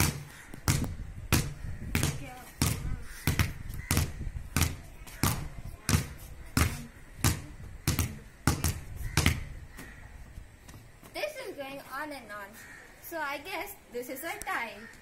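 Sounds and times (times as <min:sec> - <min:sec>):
balls bouncing on concrete: 0:00.0 - 0:11.2.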